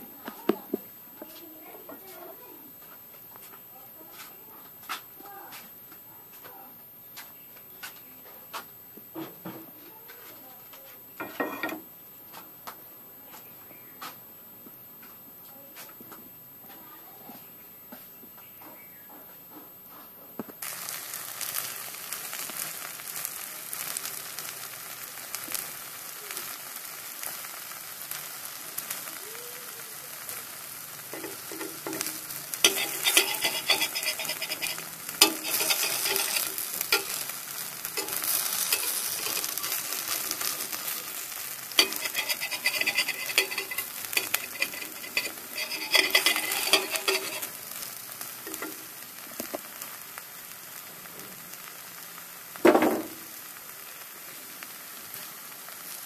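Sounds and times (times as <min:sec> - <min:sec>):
food sizzling on griddle: 0:00.0 - 0:05.7, 0:06.3 - 0:14.2, 0:19.9 - 0:56.0
metal spatula scraping griddle: 0:11.2 - 0:11.8, 0:31.1 - 0:48.9.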